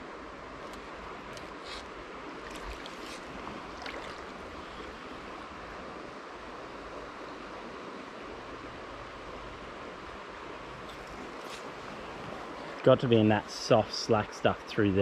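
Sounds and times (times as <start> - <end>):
stream running over gravel: 0.6 - 5.4, 10.6 - 15.0.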